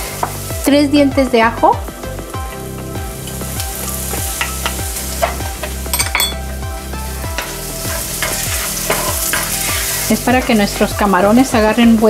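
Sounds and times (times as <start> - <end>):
onion sizzling in a frying pan: 0.0 - 12.0
wooden spatula scraping a pan: 7.4 - 10.6.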